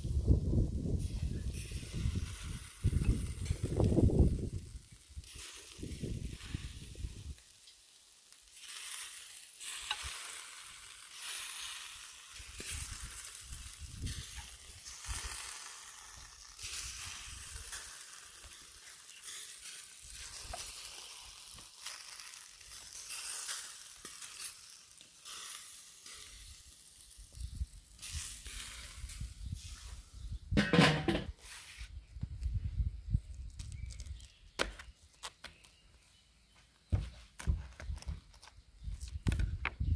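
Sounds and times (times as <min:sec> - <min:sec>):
meat sizzling on a grill: 0:00.0 - 0:31.6.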